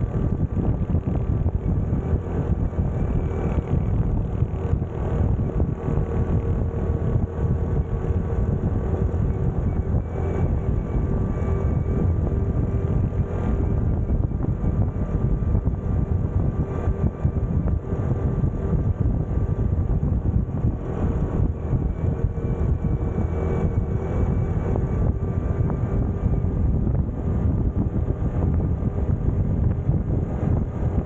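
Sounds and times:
motorcycle engine running: 0.0 - 31.0
wind and road noise: 0.0 - 31.0.

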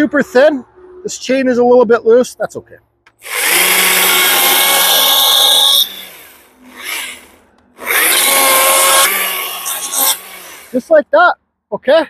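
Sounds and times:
battery chainsaw cutting wood: 3.2 - 10.9.

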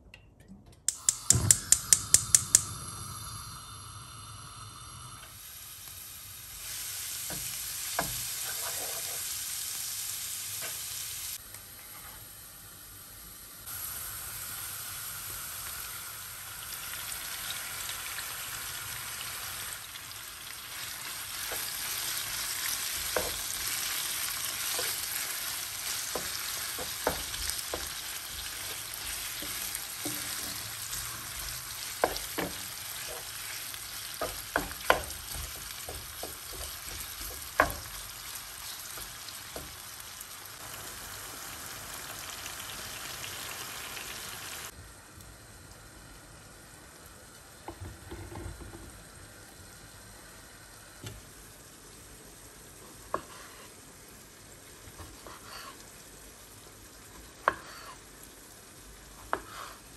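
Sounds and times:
onion sizzling in a pan: 0.9 - 59.9
wooden spatula knocking: 26.0 - 30.7, 31.4 - 33.3, 34.2 - 38.0.

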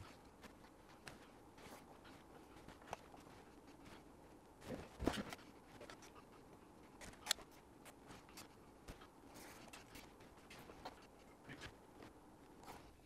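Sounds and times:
small clicks and rustles of hands: 0.0 - 13.0.

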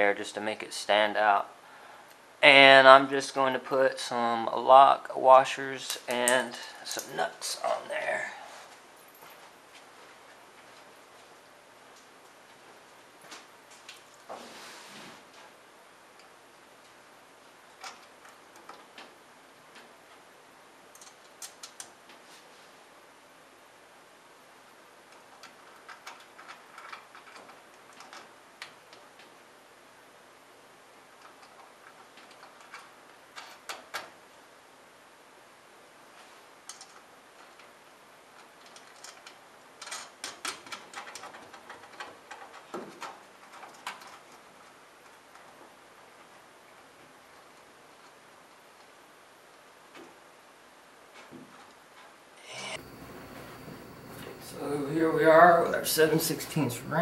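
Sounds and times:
faint steady hiss: 0.0 - 57.0
metallic clicks of nuts and washers: 20.9 - 22.0, 25.1 - 29.3, 31.2 - 34.1, 38.4 - 44.4.

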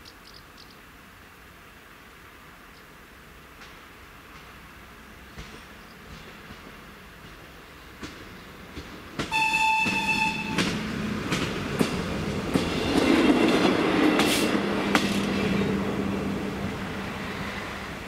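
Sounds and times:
railcar engine humming: 0.0 - 18.0
wheels clicking over rail joints: 5.3 - 15.6
train horn blast: 9.3 - 10.8.

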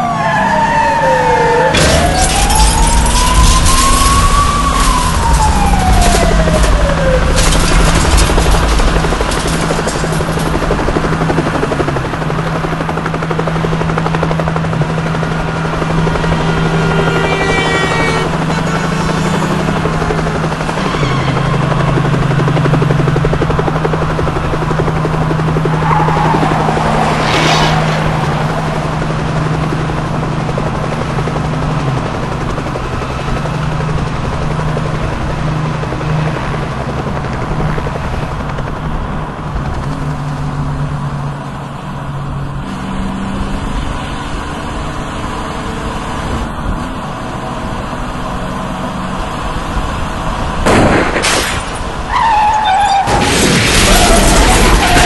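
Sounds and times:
vehicle engine drone: 0.0 - 55.0
helicopter rotor chop: 0.1 - 55.0
loud rushing sweep: 25.6 - 29.2
high squealing slide: 52.1 - 55.0.

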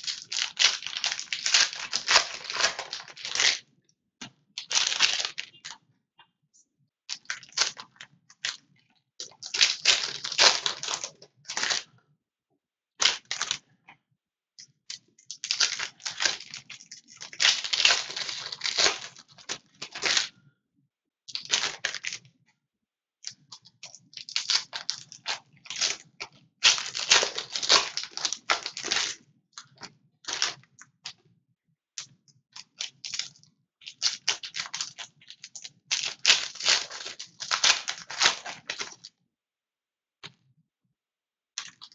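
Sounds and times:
foil wrappers tearing and crinkling: 0.0 - 3.6, 4.6 - 5.5, 9.2 - 11.8, 15.4 - 20.3, 21.3 - 22.2, 24.3 - 26.0, 26.6 - 29.2, 33.9 - 39.1.

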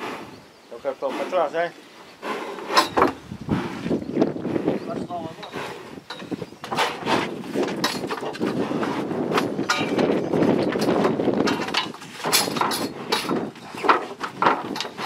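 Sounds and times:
rough dense background noise: 0.0 - 15.0
steel bars knocking and rattling: 7.6 - 15.0.

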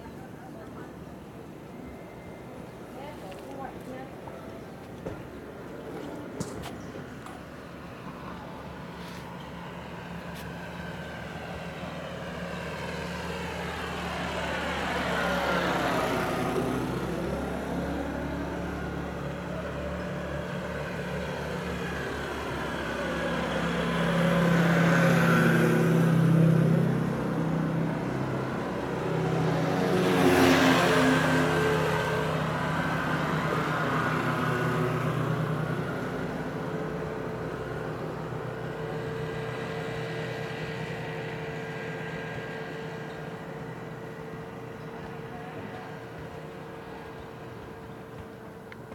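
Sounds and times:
vehicles driving past: 0.0 - 48.9.

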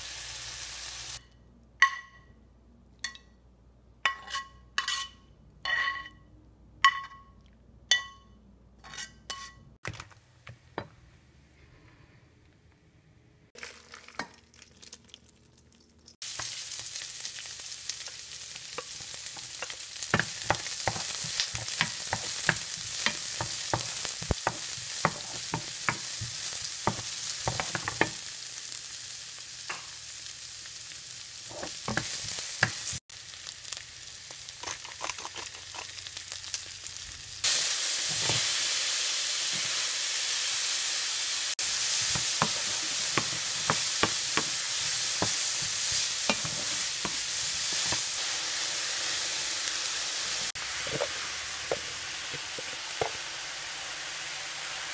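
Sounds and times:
vegetables sizzling in hot oil: 0.0 - 1.2, 16.1 - 54.9
wooden spoon scraping a pan: 20.2 - 28.1, 41.9 - 48.2, 50.8 - 53.2.

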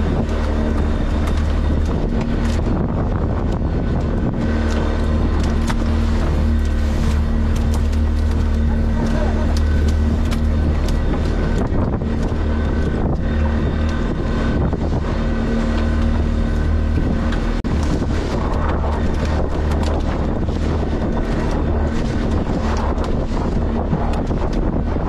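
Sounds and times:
boat motor running: 0.0 - 25.0
wind buffeting microphone: 0.0 - 25.0.

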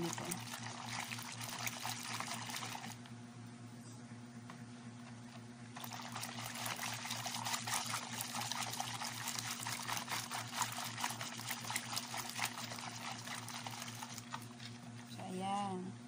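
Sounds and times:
whisk beating batter in a bowl: 0.0 - 3.0, 5.8 - 15.2.

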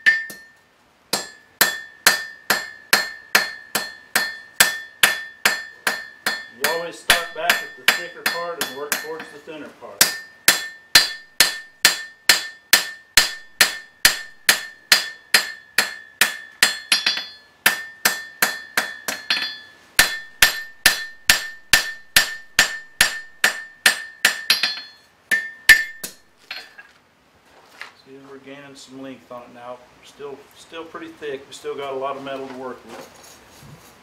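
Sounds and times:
hammer striking steel on anvil: 0.0 - 26.8.

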